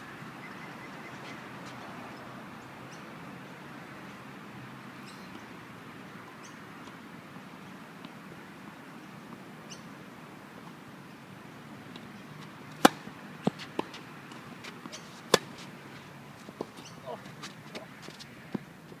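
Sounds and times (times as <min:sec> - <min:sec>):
low background noise: 0:00.0 - 0:19.0
tennis racket striking ball: 0:12.8 - 0:14.0.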